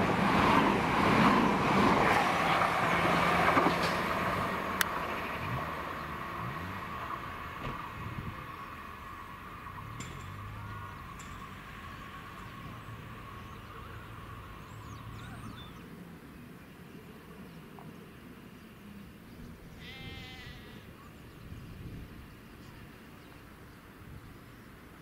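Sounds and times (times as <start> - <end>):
sheep bleating: 19.8 - 20.9.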